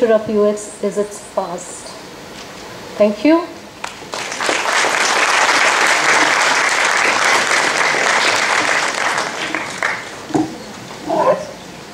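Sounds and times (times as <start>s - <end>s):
audience applauding: 3.8s - 10.3s.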